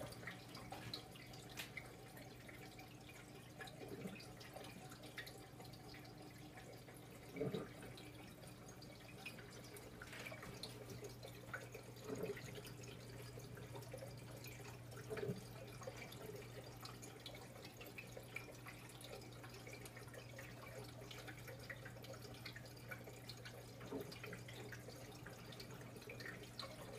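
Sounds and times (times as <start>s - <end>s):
aquarium water bubbling: 0.0s - 26.9s.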